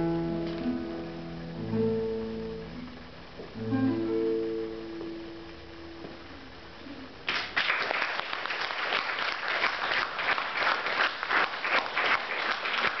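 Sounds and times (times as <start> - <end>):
classical guitar note: 0.0 - 7.1
audience applause: 7.3 - 13.0.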